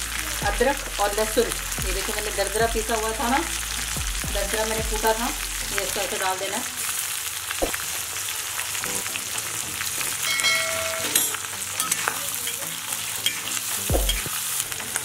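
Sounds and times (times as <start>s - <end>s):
vegetables sizzling in hot oil: 0.0s - 15.0s
spoon scraping pan: 10.4s - 14.7s.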